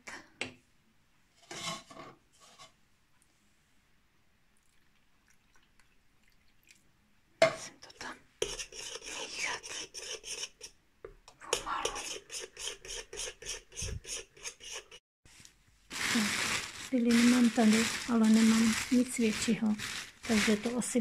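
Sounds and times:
spoon stirring paste in pot: 8.4s - 15.0s.

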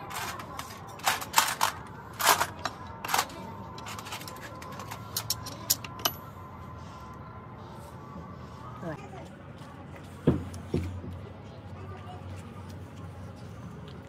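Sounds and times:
metal parts and tools clinking: 0.0s - 6.2s.

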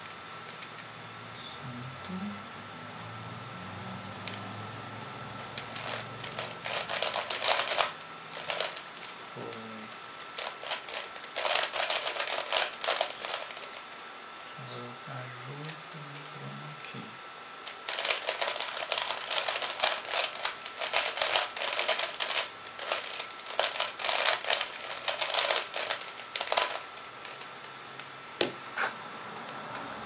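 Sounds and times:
puzzle cube clicking and rattling: 5.6s - 9.6s, 10.2s - 13.8s, 17.6s - 27.5s
sharp plastic clacks: 5.6s - 9.6s, 17.7s - 27.7s.

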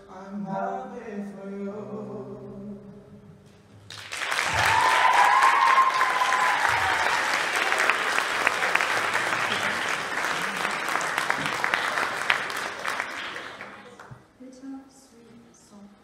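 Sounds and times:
audience applause: 3.9s - 14.2s
person cheering: 4.5s - 7.6s.

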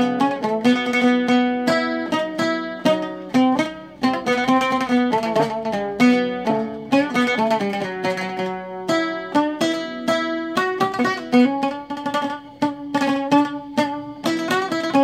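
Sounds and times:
oud plucked melody: 0.0s - 15.0s.

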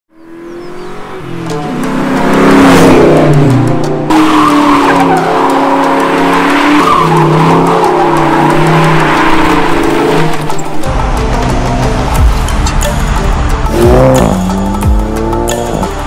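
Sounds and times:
electronic music: 1.0s - 16.0s
car tires squealing: 4.1s - 10.4s.

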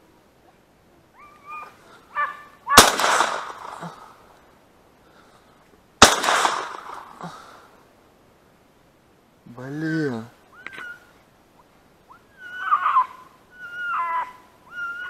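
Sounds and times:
shotgun shots echoing: 2.7s - 4.0s, 6.0s - 7.2s.

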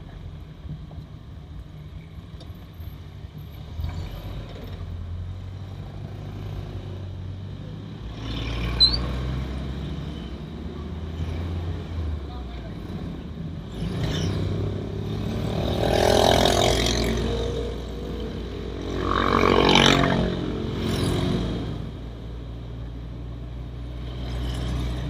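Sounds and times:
short high squeak: 8.7s - 9.2s.

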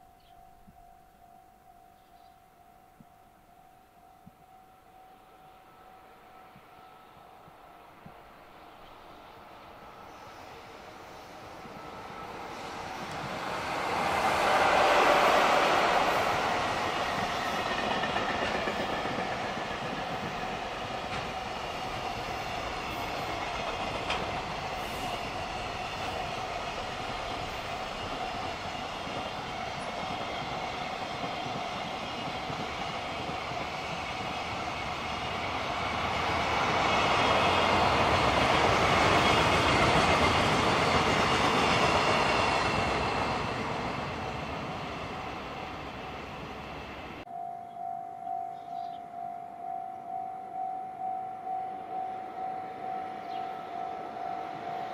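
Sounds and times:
level crossing warning bell: 0.0s - 8.5s, 47.3s - 54.9s
freight train wheels rumbling: 5.2s - 47.3s.

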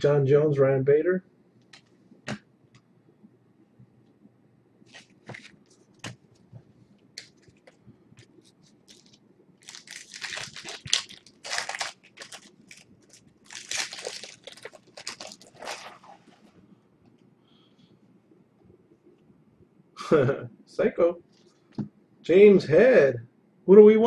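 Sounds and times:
foil wrapper tearing and crinkling: 8.8s - 16.4s.

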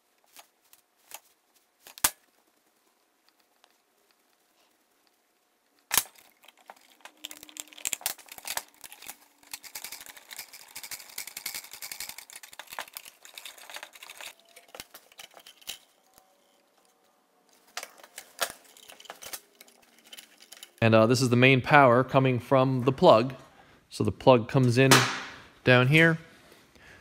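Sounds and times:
crinkling of wires and plastic: 0.0s - 20.9s
sharp knock: 24.9s - 25.4s.

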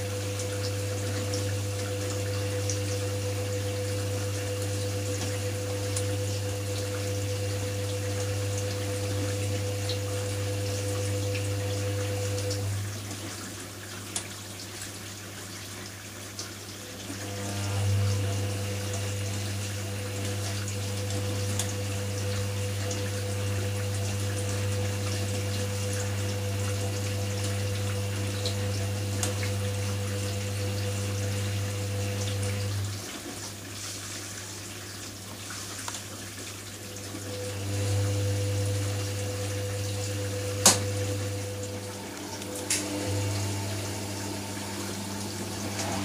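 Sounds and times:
washing machine motor humming: 0.0s - 15.7s, 16.5s - 33.9s, 36.1s - 46.0s.

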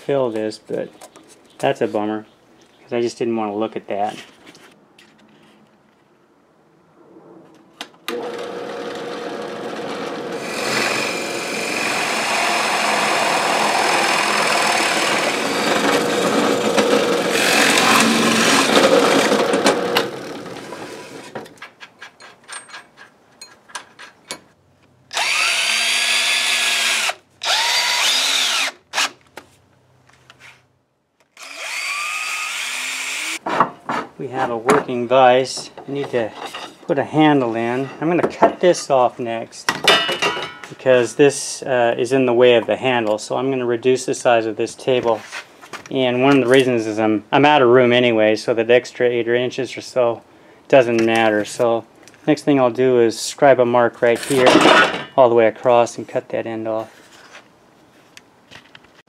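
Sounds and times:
cordless drill motor bursts: 8.1s - 20.4s, 25.1s - 29.1s, 31.3s - 33.4s
drill press boring through wood: 8.1s - 20.7s, 25.1s - 28.8s, 31.4s - 33.4s.

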